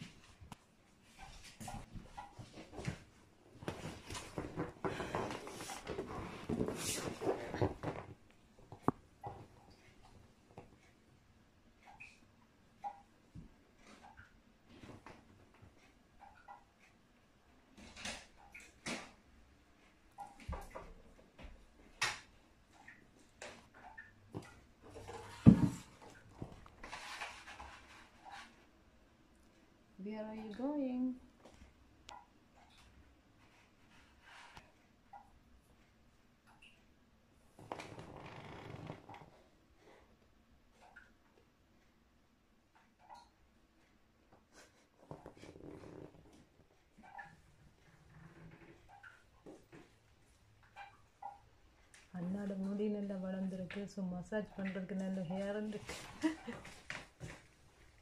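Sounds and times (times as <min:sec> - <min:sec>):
rustling and shuffling: 0:00.0 - 0:11.0, 0:24.3 - 0:29.8, 0:54.7 - 0:58.0.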